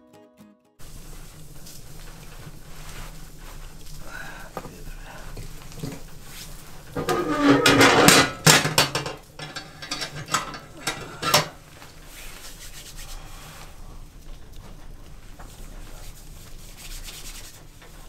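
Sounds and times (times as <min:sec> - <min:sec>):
wood scraping into stove: 0:00.8 - 0:12.4
iron stove door knocks: 0:07.0 - 0:11.6.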